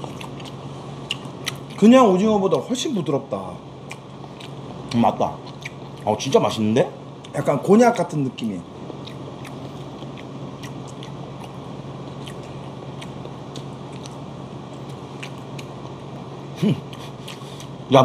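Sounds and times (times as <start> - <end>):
quiet chewing: 0.0 - 1.8, 3.8 - 6.2, 8.8 - 17.8
steady low hum: 0.0 - 18.0.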